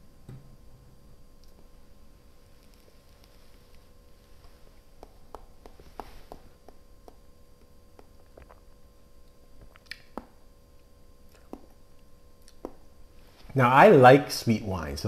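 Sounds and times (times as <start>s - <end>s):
faint electrical hum: 0.0s - 15.0s.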